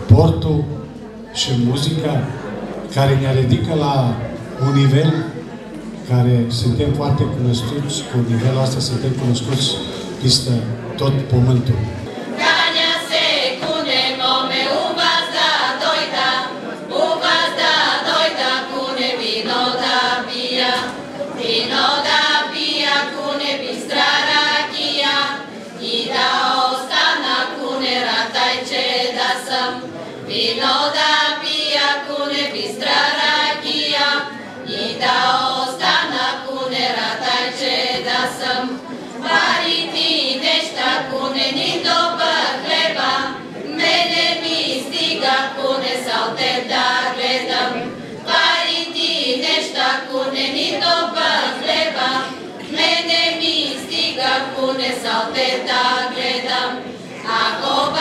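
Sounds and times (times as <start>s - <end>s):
women's choir singing a cappella: 12.0s - 58.0s.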